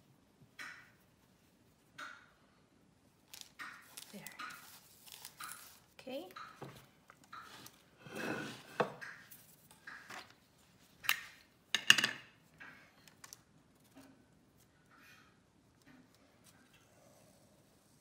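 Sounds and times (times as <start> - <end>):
parchment paper rustling: 3.2 - 6.0.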